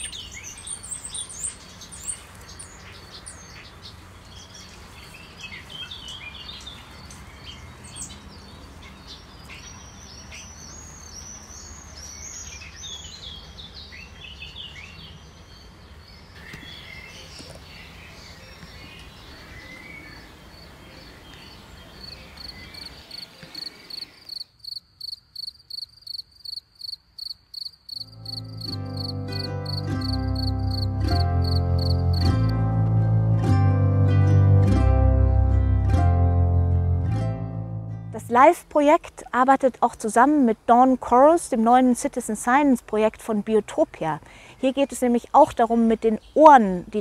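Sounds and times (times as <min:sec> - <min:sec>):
songbirds singing: 0:00.0 - 0:25.1, 0:25.7 - 0:32.3, 0:38.2 - 0:47.0
low steady background noise: 0:00.0 - 0:29.3, 0:38.1 - 0:47.0
insect chirping: 0:20.1 - 0:32.3.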